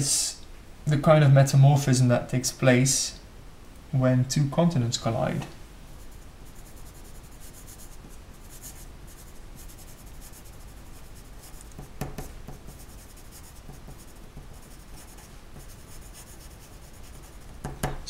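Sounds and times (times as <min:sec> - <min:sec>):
pencil writing on paper: 0:06.6 - 0:17.9.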